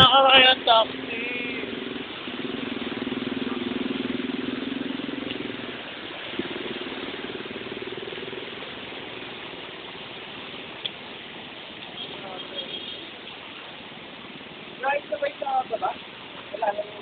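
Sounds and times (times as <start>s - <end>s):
vehicle engine throbbing: 0.0s - 10.5s.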